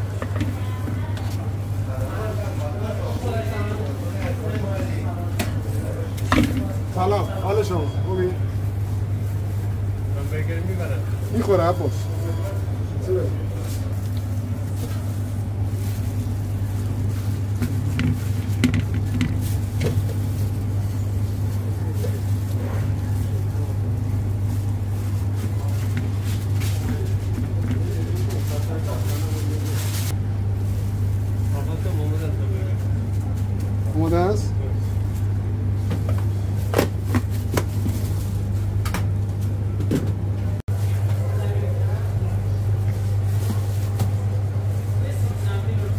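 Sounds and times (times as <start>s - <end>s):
kitchen machinery humming: 0.0s - 45.9s.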